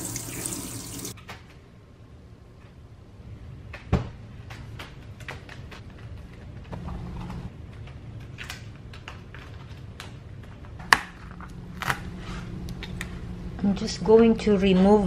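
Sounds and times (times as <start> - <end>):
steady low hum: 9.9 - 15.0.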